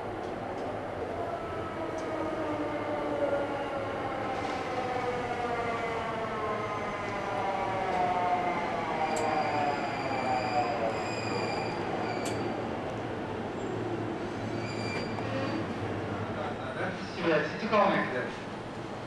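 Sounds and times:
thin high brake squeal: 9.1s - 12.5s, 14.4s - 15.7s.

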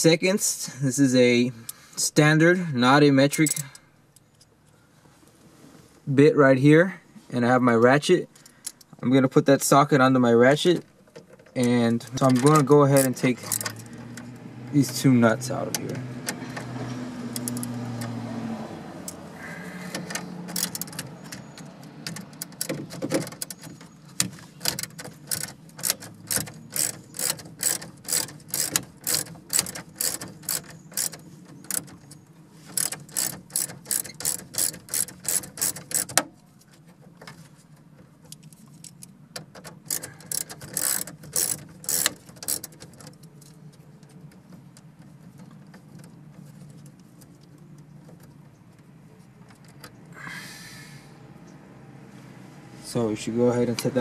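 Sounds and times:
hand ratchet clicking: 12.2s - 14.2s, 17.3s - 18.1s, 19.9s - 21.4s, 24.6s - 36.3s, 38.8s - 43.3s.

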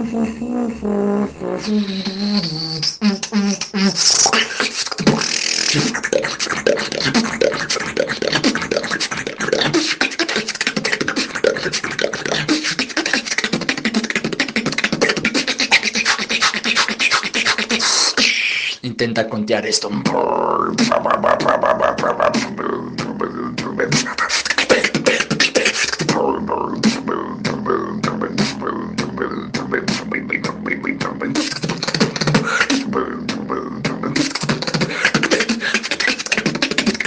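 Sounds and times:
beatboxing mouth percussion: 0.0s - 37.0s
pitched vocal tones: 0.0s - 37.0s.

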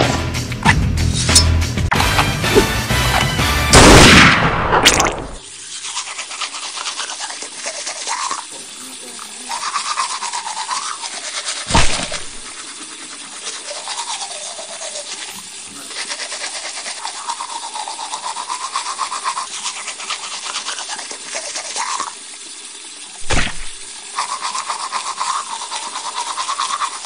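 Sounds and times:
toothbrush scrubbing teeth: 5.7s - 22.2s, 24.1s - 27.0s.

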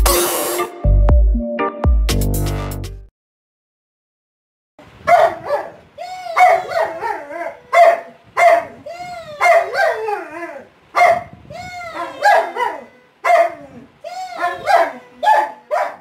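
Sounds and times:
large dog barking and howling: 5.0s - 16.0s.

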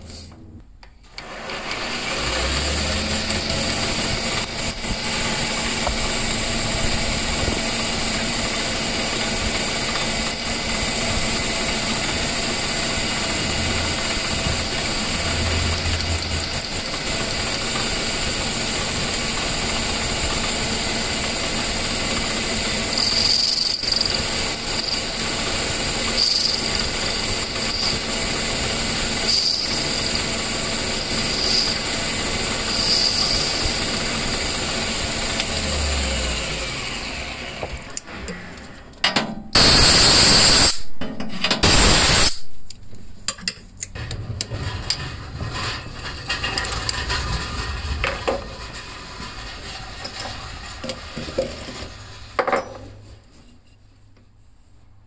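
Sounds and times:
metal lathe running: 1.0s - 38.8s, 39.6s - 40.7s, 44.5s - 52.4s
high-pitched squeaks: 13.1s - 18.1s.

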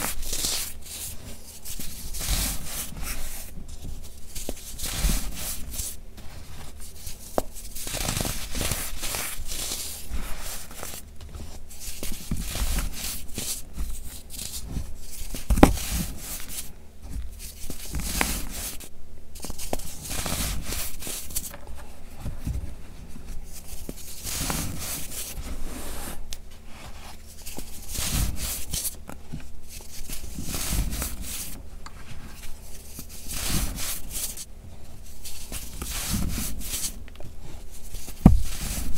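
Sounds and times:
hands crunching baking soda: 0.0s - 3.5s, 4.1s - 16.7s, 23.5s - 26.2s, 27.4s - 29.0s, 29.7s - 31.5s, 32.7s - 34.5s, 35.2s - 37.0s.

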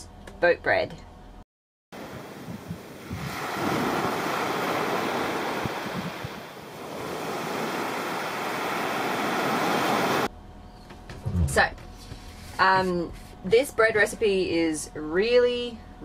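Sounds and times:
small waves washing over sand: 2.0s - 10.3s.

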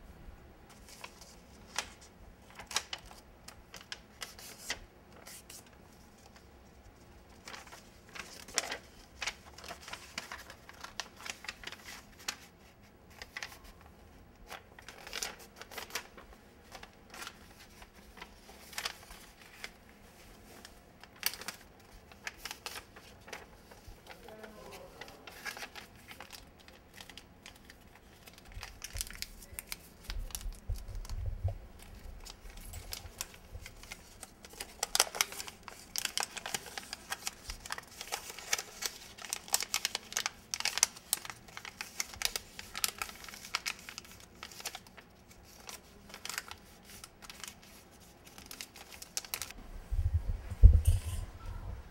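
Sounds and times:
paper crinkling and snapping: 0.7s - 49.6s
low rumble: 49.6s - 51.9s.

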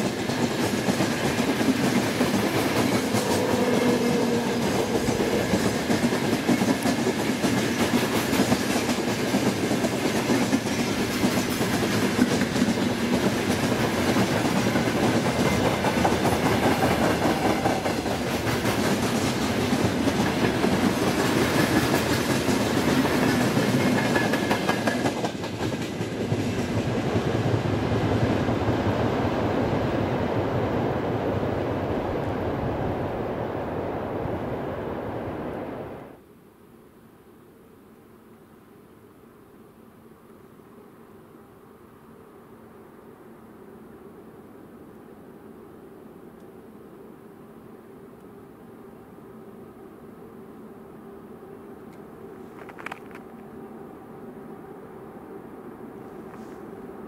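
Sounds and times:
clickety-clack over rail joints: 0.0s - 28.8s, 52.5s - 53.4s
freight train rolling past: 0.0s - 36.2s.

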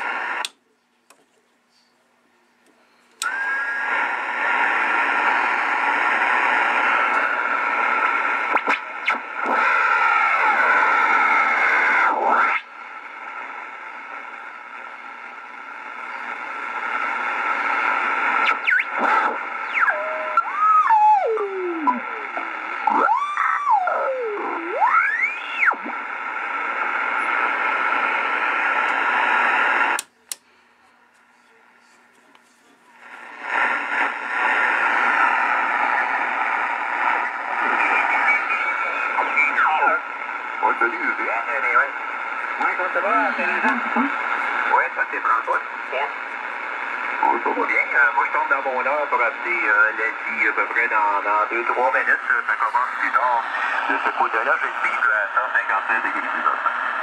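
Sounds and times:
radio static hiss: 0.0s - 2.1s, 2.8s - 57.0s
radio whistling beat tone: 3.2s - 12.7s, 15.9s - 30.0s.

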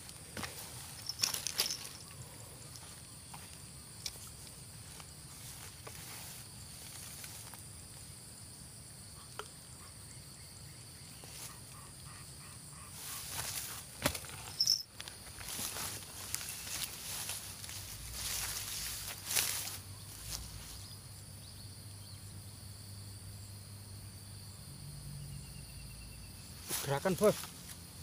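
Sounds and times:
high insect drone: 0.0s - 28.0s
rustling close to microphone: 13.0s - 20.8s.

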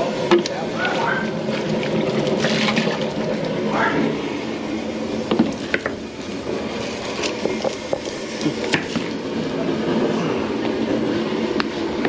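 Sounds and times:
gas burner hissing: 0.0s - 12.0s.

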